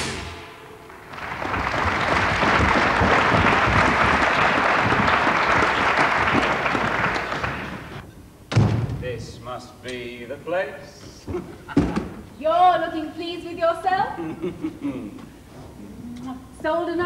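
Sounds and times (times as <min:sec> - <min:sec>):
audience applauding: 0:00.9 - 0:08.0.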